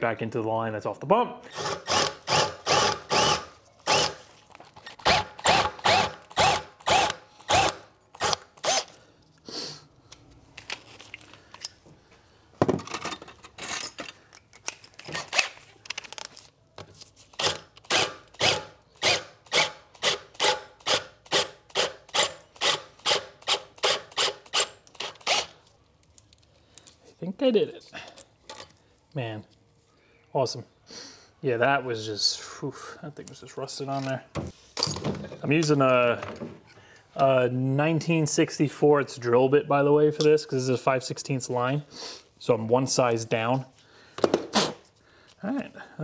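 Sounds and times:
cordless drill grinding metal: 1.5s - 4.2s, 4.8s - 9.0s, 17.4s - 25.6s.

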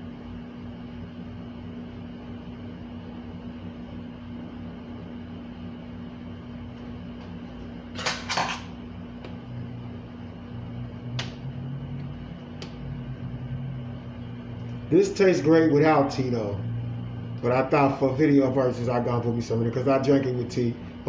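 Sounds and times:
steady low hum: 0.0s - 21.0s
kitchen clatter: 8.0s - 8.7s.

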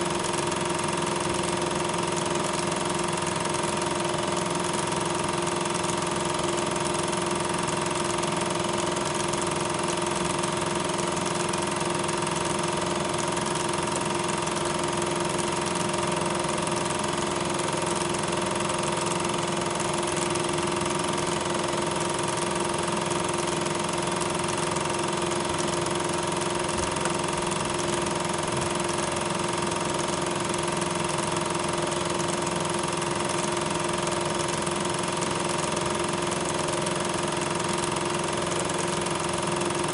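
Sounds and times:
film projector running: 0.0s - 39.9s.

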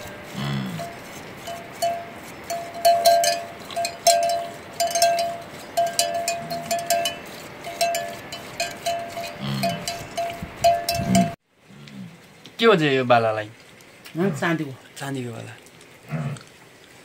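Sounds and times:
livestock bells clanking: 0.0s - 11.4s
low animal grunt: 16.0s - 16.5s.

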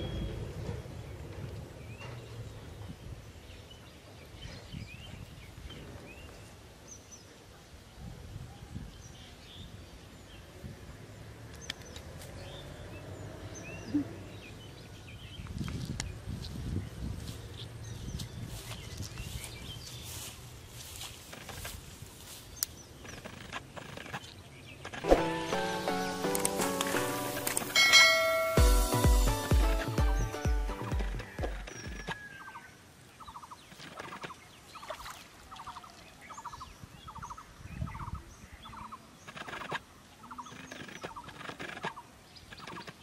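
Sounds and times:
small birds chirping: 11.4s - 25.1s, 29.2s - 43.0s
sharp clicks: 39.2s - 43.0s.

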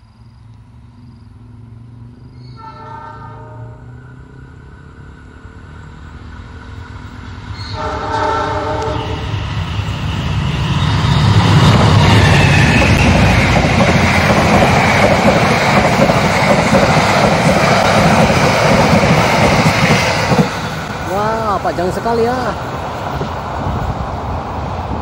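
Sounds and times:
train engine running: 0.0s - 25.0s
train horn blast: 2.5s - 4.0s, 7.6s - 9.4s
wheels clattering over rails: 11.1s - 22.8s.

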